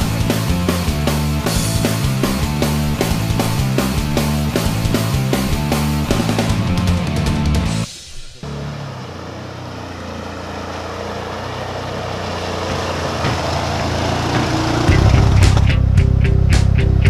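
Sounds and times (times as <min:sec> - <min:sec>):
atv engine running: 0:00.0 - 0:07.8, 0:08.4 - 0:17.0
loud rock music: 0:00.0 - 0:08.2, 0:13.2 - 0:17.0.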